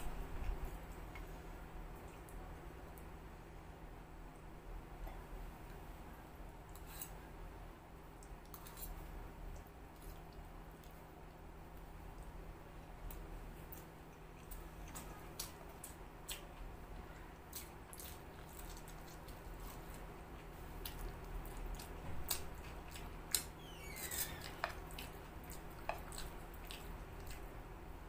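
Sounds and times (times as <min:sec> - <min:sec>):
wet eating sounds: 0:17.4 - 0:27.6
short falling squeak: 0:23.6 - 0:24.6.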